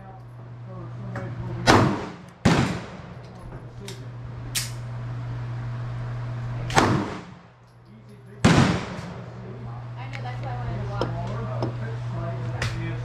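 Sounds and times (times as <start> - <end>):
steady low hum: 0.0 - 13.0
pistol gunshots: 1.7 - 3.2, 6.7 - 7.4, 8.4 - 9.2.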